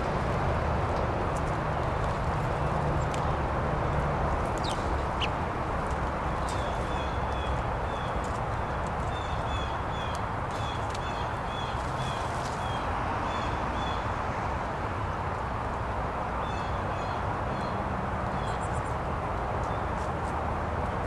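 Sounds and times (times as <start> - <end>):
songbirds chirping: 1.0 - 14.2.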